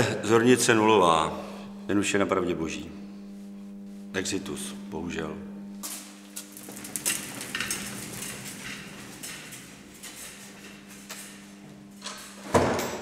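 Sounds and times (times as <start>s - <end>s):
low hum: 0.0s - 12.4s
gurney rattling and clicking: 6.5s - 11.2s.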